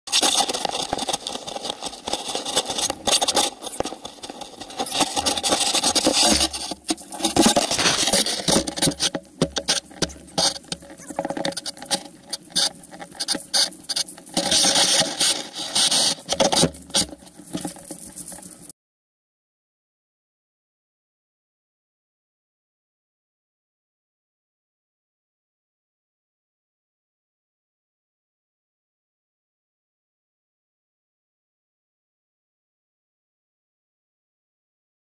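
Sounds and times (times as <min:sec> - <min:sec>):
camera pole rubbing and knocking: 0:00.1 - 0:18.7
footsteps crunching dry leaves: 0:06.4 - 0:08.8.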